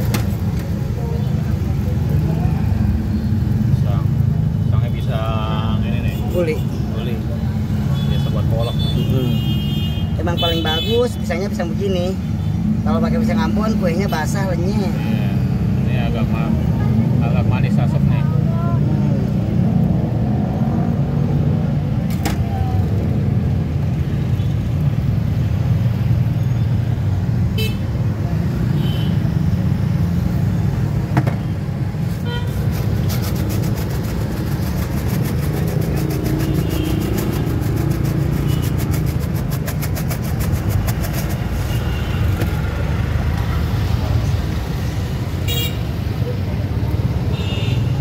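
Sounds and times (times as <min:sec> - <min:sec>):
road traffic rumble: 0:00.0 - 0:48.0
sprinkles rattling in container: 0:32.6 - 0:41.6.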